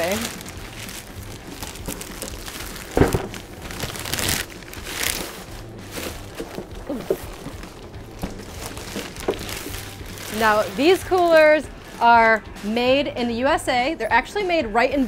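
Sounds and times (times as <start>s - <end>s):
plastic wrapping crinkling: 0.0s - 12.8s
sharp thump: 3.0s - 3.4s.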